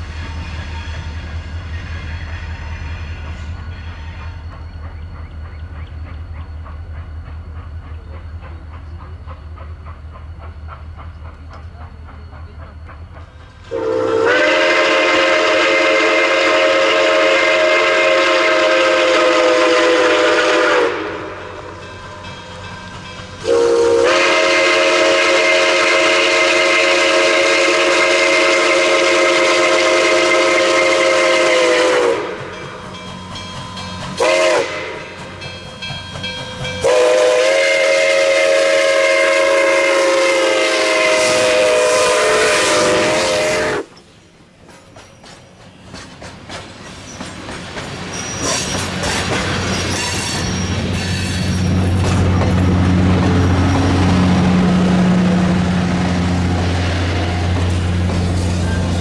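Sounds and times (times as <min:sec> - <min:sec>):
steam locomotive whistle: 0:00.0 - 0:05.0, 0:13.5 - 0:22.0, 0:23.4 - 0:33.0, 0:34.1 - 0:35.6, 0:36.6 - 0:44.0
train cars clacking on rails: 0:00.0 - 0:41.8, 0:42.7 - 0:59.0.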